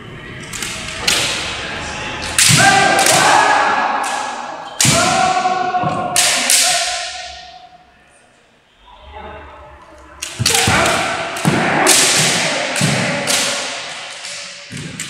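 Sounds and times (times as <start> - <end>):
bamboo sword strikes: 2.4 - 7.3, 10.2 - 15.0
long drawn-out shouts: 2.4 - 7.5.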